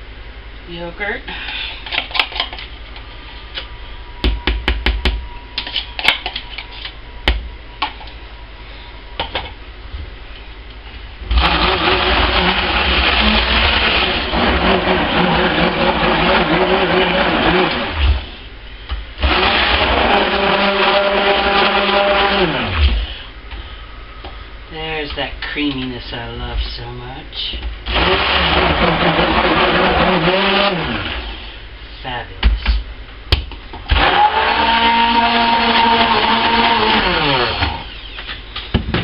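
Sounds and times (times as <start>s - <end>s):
stick blender running: 11.3s - 18.4s, 19.2s - 23.2s, 27.8s - 31.6s, 33.9s - 38.3s.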